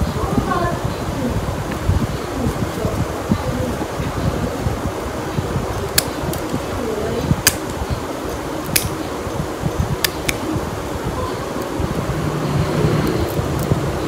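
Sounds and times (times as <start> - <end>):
low background noise: 0.0 - 14.0
nail nippers snipping toenail: 5.8 - 6.5, 7.4 - 7.8, 8.6 - 9.0, 10.0 - 10.4.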